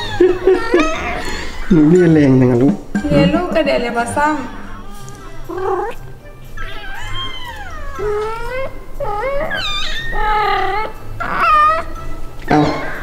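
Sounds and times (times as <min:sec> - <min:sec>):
background music: 0:00.0 - 0:13.0
kitten meowing: 0:06.6 - 0:11.9.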